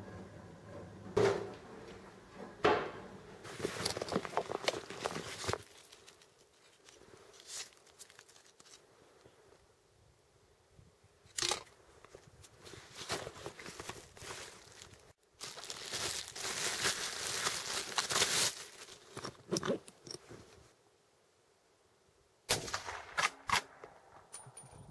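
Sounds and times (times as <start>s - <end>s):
handling sounds: 3.4s - 9.4s, 11.3s - 20.7s
plastic bag crinkling: 3.5s - 8.8s, 12.8s - 19.4s.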